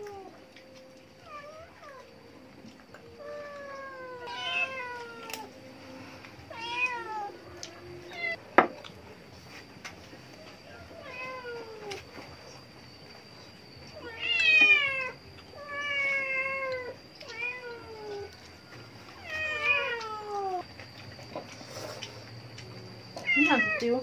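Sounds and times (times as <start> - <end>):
cat meowing: 3.2 - 5.5, 6.5 - 8.4, 14.0 - 18.3, 19.2 - 20.6, 23.2 - 23.9.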